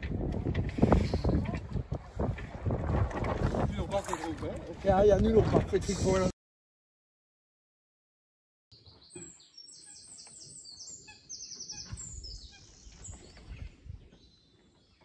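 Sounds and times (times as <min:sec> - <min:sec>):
small songbirds singing: 0:08.7 - 0:15.0.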